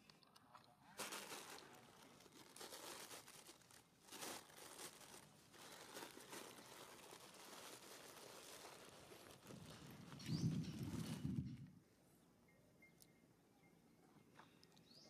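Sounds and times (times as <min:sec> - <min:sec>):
faint rustling and crackling: 0:00.0 - 0:11.8.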